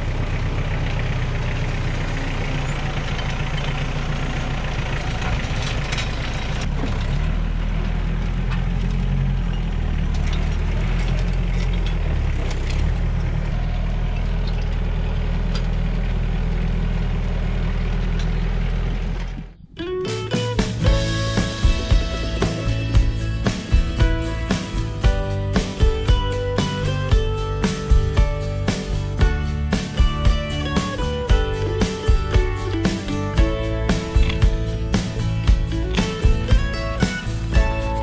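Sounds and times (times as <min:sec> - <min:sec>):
tractor engine under load: 0:00.0 - 0:38.0.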